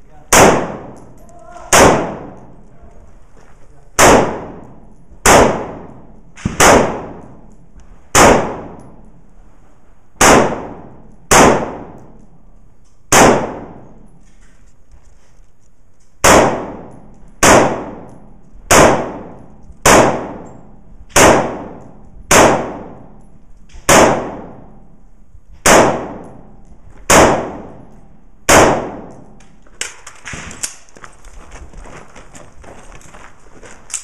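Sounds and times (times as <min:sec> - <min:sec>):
gunshots with ringing echo: 0:00.3 - 0:02.7, 0:04.0 - 0:09.2, 0:10.2 - 0:12.5, 0:13.1 - 0:14.2, 0:16.2 - 0:29.4.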